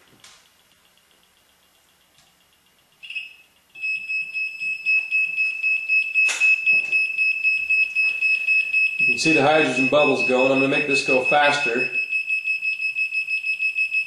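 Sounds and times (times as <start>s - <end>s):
faint ticking pulses: 0.2s - 3.8s
shrill wavering electronic tone: 3.0s - 14.0s.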